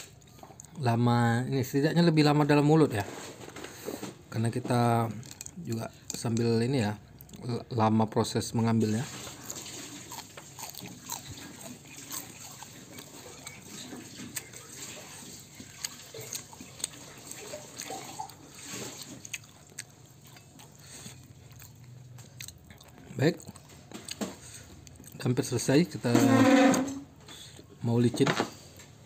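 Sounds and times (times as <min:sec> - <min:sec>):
person chewing food: 0:00.0 - 0:00.8, 0:05.0 - 0:07.6, 0:08.9 - 0:25.3.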